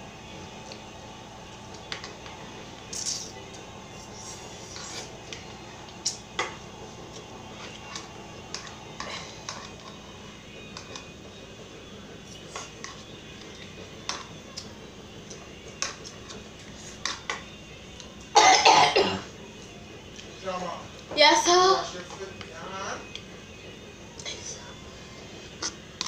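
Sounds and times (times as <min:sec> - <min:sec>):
girl coughing: 0:18.4 - 0:19.3.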